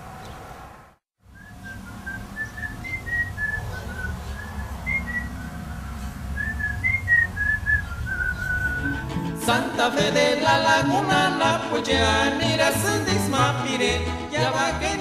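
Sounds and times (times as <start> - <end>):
low rumble: 1.4 - 9.2
person whistling a tune: 6.4 - 9.0.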